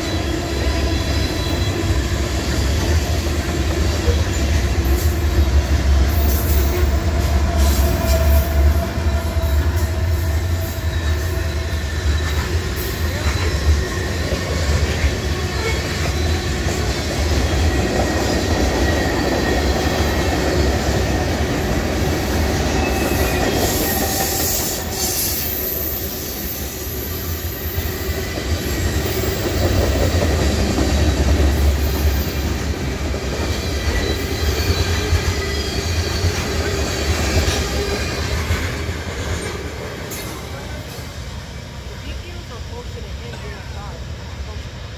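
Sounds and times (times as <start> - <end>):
freight train wheels rumbling on rail: 0.0 - 44.9
high wheel squeal: 22.5 - 29.8, 33.5 - 38.3.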